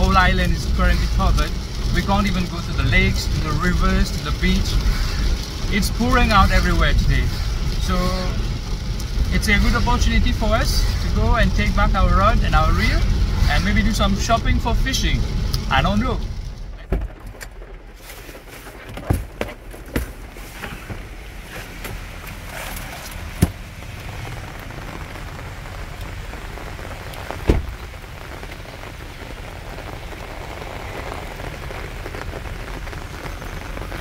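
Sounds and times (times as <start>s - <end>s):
heavy rain falling: 0.0s - 34.0s
thump: 23.4s - 23.6s, 27.5s - 27.7s.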